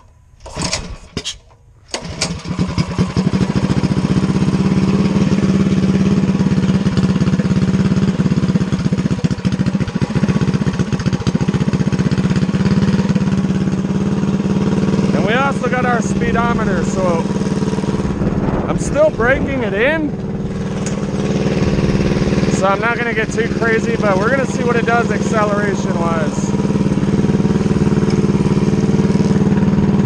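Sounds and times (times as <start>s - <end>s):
engine idling: 0.0s - 30.0s
engine knocks on starting: 0.4s - 4.0s.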